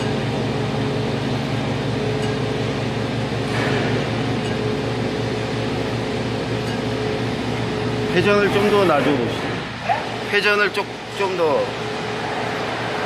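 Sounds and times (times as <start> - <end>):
boring mill mechanical hum: 0.0 - 13.0
constant machine whine: 0.0 - 13.0.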